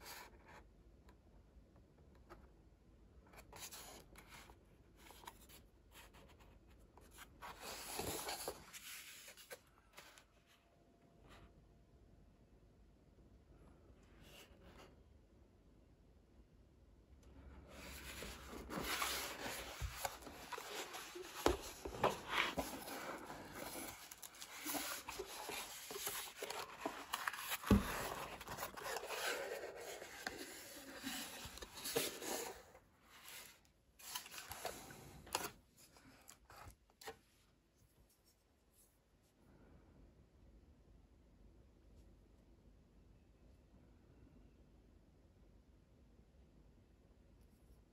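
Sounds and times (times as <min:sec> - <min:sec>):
cardboard box scraping: 0:17.8 - 0:33.5.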